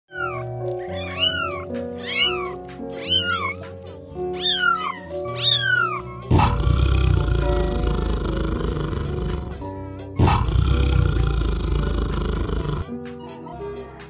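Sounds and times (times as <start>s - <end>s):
cat meowing: 0.1s - 6.3s
background music: 0.1s - 14.0s.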